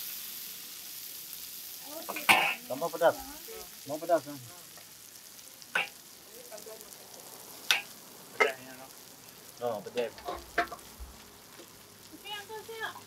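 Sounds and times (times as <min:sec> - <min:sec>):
food frying sizzle: 0:00.0 - 0:13.0
cooking utensil knocks: 0:10.0 - 0:10.8.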